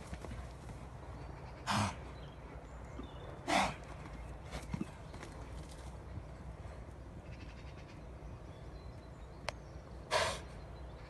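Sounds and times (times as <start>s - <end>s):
horse snorting: 1.6s - 2.0s, 3.5s - 3.8s.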